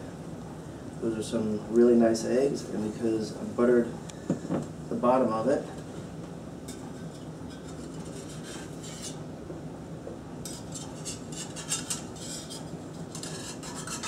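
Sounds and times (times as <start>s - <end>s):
metal spatula scraping skillet: 7.0s - 9.2s, 10.5s - 14.0s.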